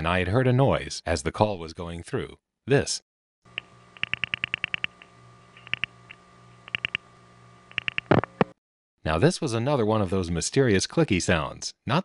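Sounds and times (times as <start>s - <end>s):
telephone line clicking: 3.5s - 7.0s, 7.7s - 8.6s
faint hum on phone line: 3.5s - 8.6s.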